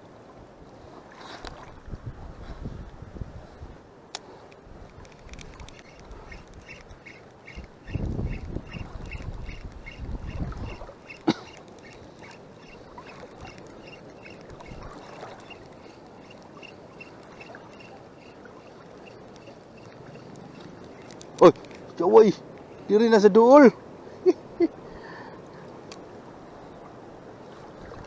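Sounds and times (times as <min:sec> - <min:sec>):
water sloshing: 0:00.8 - 0:02.3, 0:04.2 - 0:22.8, 0:26.6 - 0:28.0
wind buffeting microphone: 0:01.4 - 0:03.9, 0:04.6 - 0:21.6
faint even ticking: 0:04.9 - 0:21.8.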